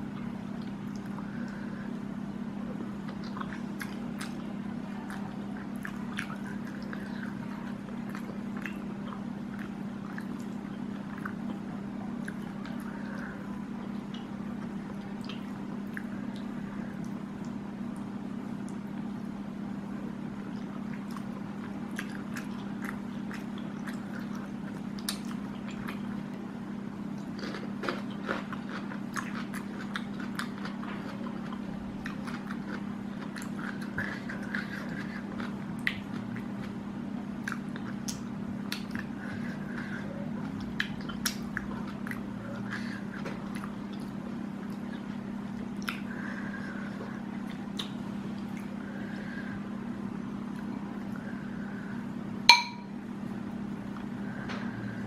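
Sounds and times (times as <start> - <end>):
steady low hum: 0.0 - 55.0
person chewing with wet mouth sounds: 0.1 - 19.3, 20.4 - 49.6.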